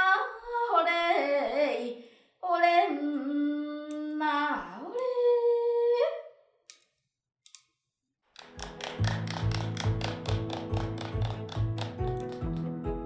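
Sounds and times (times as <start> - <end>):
woman singing unaccompanied: 0.0 - 6.0
fast even tapping: 8.4 - 13.0.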